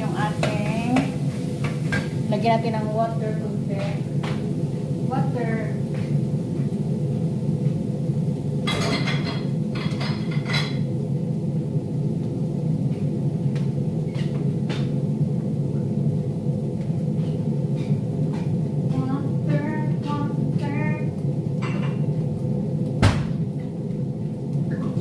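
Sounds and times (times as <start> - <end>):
range hood fan humming: 0.0 - 25.0
pots and utensils clattering: 8.6 - 10.9, 21.6 - 22.2.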